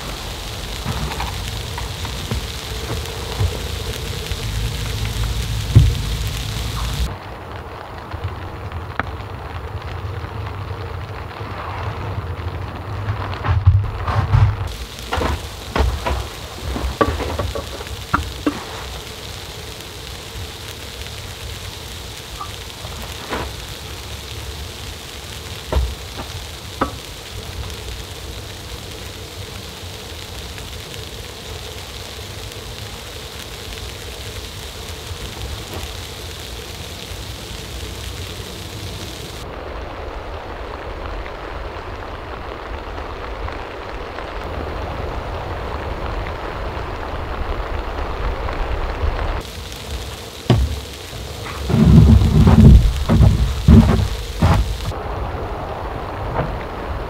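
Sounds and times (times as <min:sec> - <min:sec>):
low dull rushing: 0:00.0 - 0:08.3, 0:49.9 - 0:55.1
steady rain falling: 0:00.0 - 0:57.0
sharp knocks and taps: 0:50.5 - 0:50.8.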